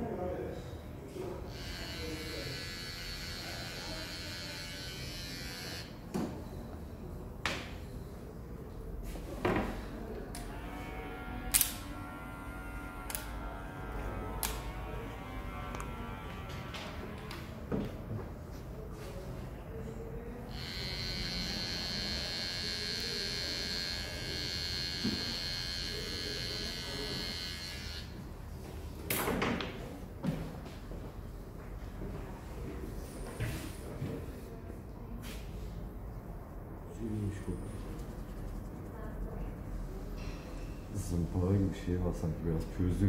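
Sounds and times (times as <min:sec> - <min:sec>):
electric hair trimmer buzzing: 0:01.5 - 0:05.9, 0:10.5 - 0:16.4, 0:20.5 - 0:28.1.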